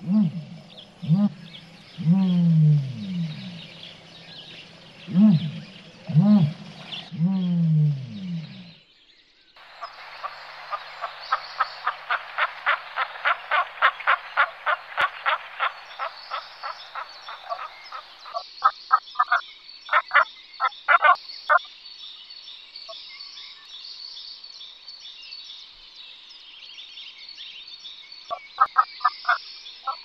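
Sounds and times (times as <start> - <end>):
low ostrich call: 0.0 - 4.0, 5.0 - 8.7, 9.6 - 18.4, 20.9 - 21.2
black grouse rasping calls: 0.0 - 8.7, 9.6 - 18.4, 20.9 - 21.2, 28.3 - 30.0.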